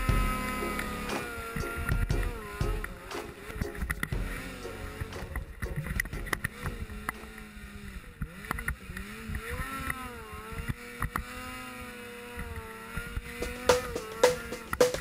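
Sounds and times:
snowmobile engine revving: 0.0 - 14.8
sharp knocks and thumps: 13.4 - 15.0.

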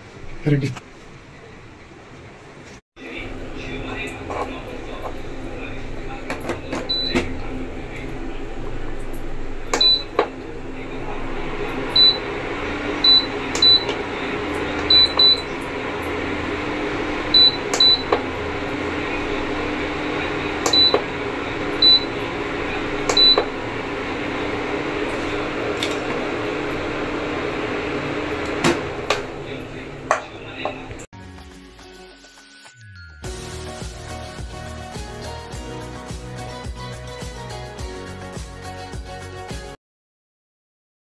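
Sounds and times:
cooling fan humming: 0.0 - 31.1.

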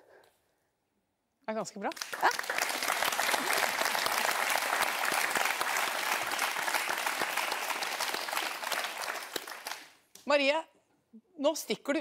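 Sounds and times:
audience applauding: 1.9 - 10.0.

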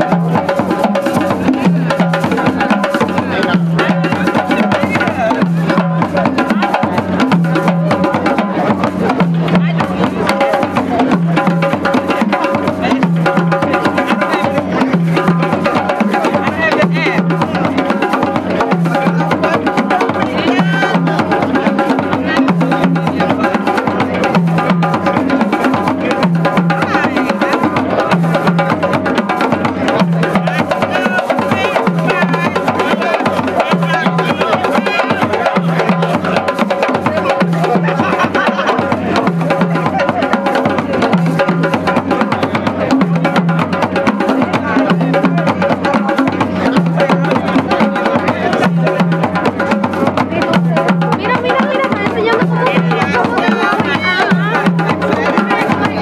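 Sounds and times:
hand drums playing fast rhythm: 0.0 - 56.0
person's voice: 12.3 - 24.4, 30.0 - 40.3, 50.3 - 56.0.

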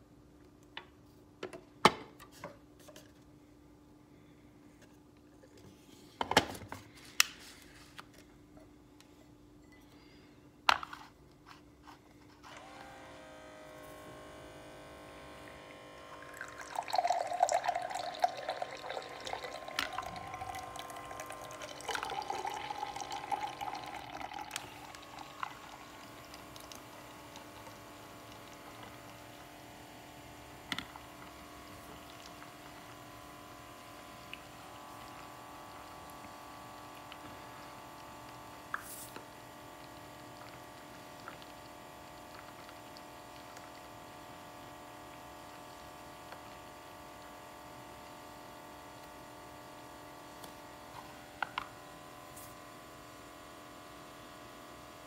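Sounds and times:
beer pouring into glass: 15.6 - 29.4.

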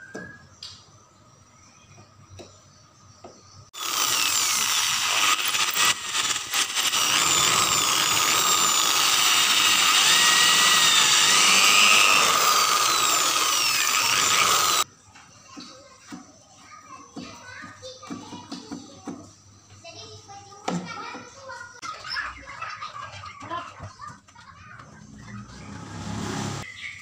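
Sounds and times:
electric drill motor whine: 3.8 - 14.8.

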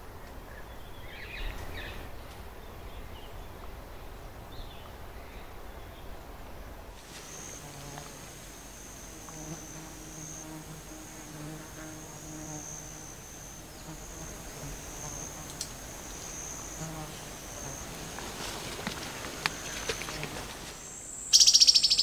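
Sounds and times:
insect high-pitched trill: 7.0 - 22.0
low insect buzz: 7.0 - 22.0.

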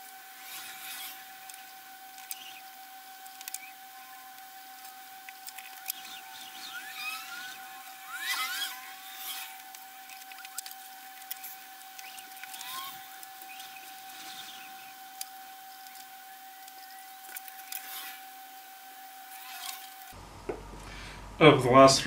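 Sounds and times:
faint steady tone: 0.0 - 21.4
short squeaks: 5.8 - 10.7.

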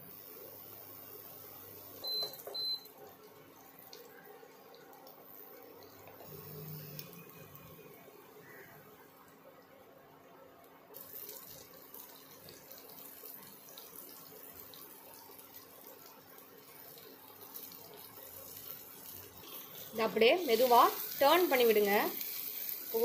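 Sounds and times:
food sizzling in oil: 0.0 - 9.0, 10.9 - 23.0.

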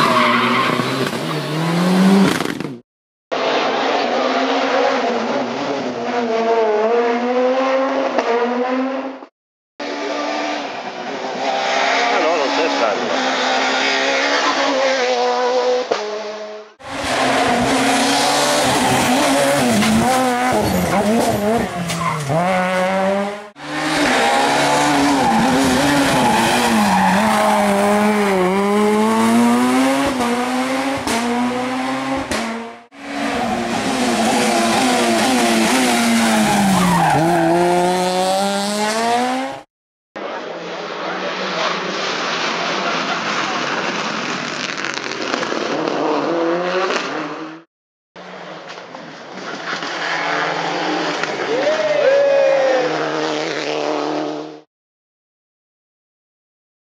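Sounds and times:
rally car engines passing: 9.8 - 39.6, 40.2 - 44.8, 48.2 - 54.6.

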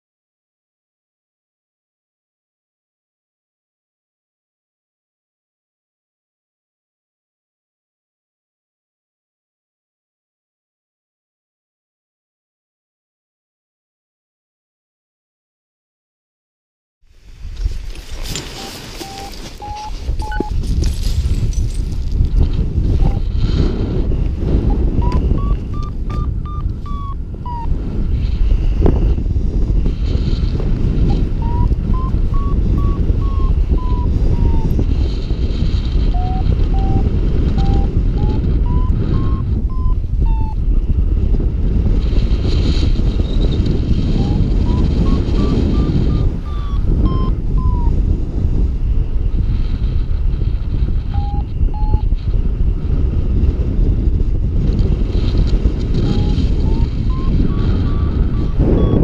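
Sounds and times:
wind buffeting microphone: 17.1 - 59.0
variometer short beeps: 18.4 - 20.6, 23.0 - 23.3, 24.7 - 27.7, 31.0 - 34.7, 36.1 - 40.6, 44.2 - 48.0, 51.1 - 52.1, 56.0 - 59.0.

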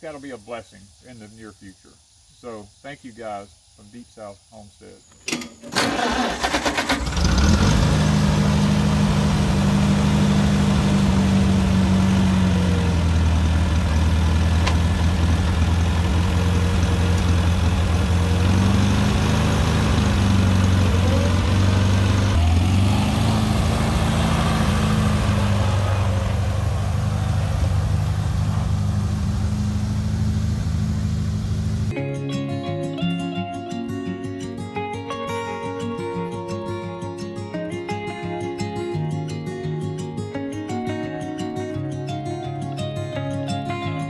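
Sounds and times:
tractor engine running: 5.2 - 31.9
acoustic guitar music: 31.9 - 44.0.

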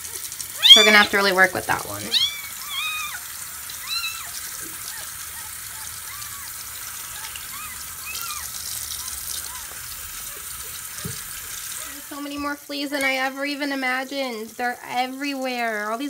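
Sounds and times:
tap water running into sink: 0.0 - 16.0
kitten mewing: 0.6 - 1.3, 2.0 - 10.5.

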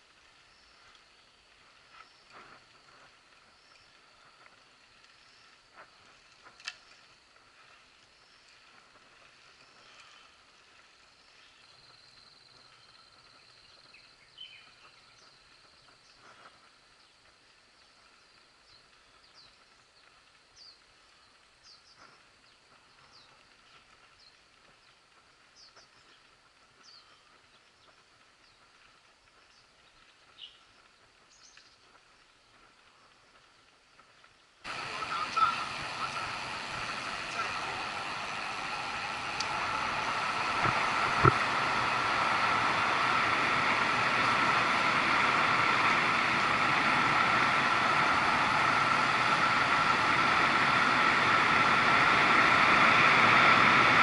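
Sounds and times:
outdoor background noise: 0.0 - 54.0
insects buzzing: 0.1 - 54.0.

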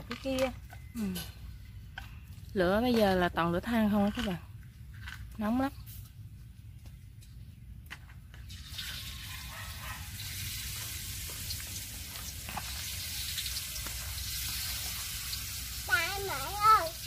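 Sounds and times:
food sizzling in hot oil: 8.5 - 17.0.

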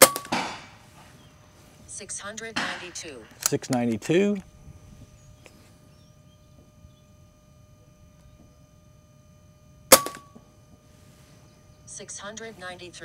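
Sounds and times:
air rifle shot: 0.0 - 0.8, 2.6 - 3.1, 9.9 - 10.3.

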